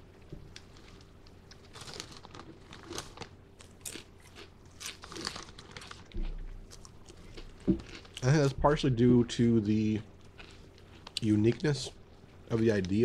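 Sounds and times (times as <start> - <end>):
crunching potato chips: 0.6 - 8.6, 10.2 - 13.0.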